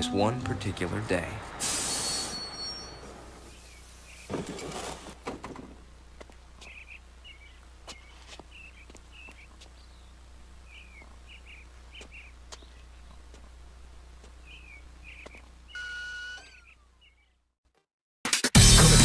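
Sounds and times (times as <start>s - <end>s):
birds chirping: 2.2s - 4.7s, 5.8s - 17.5s.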